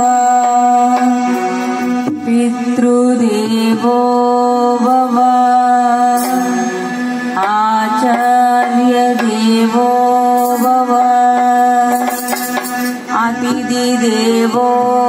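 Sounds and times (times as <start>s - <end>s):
woman singing devotional song: 0.0s - 15.0s.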